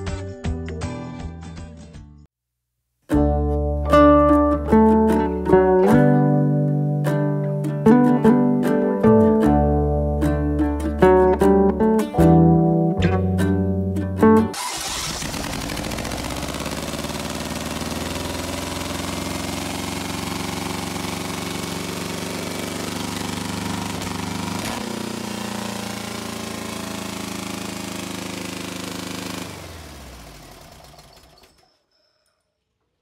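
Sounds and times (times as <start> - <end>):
engine winding down: 14.5 - 31.7
air-cooled engine running: 14.6 - 31.6.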